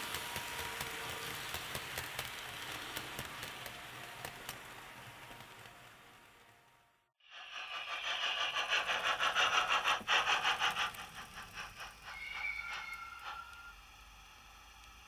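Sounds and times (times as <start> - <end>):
model train rhythmic clatter: 0.0 - 15.0
steam hiss: 7.2 - 15.0.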